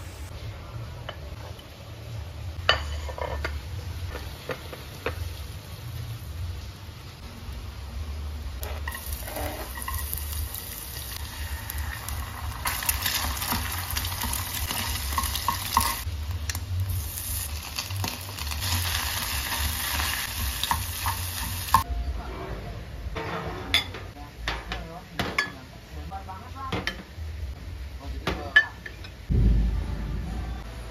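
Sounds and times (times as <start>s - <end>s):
food sizzling in hot oil: 2.7s - 21.9s
spatula scraping a pan: 8.6s - 10.2s.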